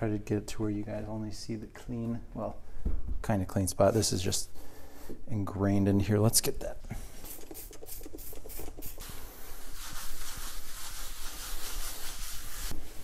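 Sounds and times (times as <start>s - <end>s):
paper towel wiping wooden workbench: 7.2s - 13.0s.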